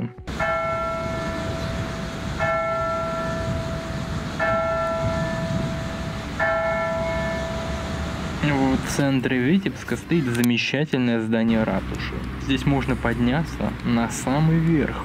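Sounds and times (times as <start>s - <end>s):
large bell tolling: 0.3s - 10.1s.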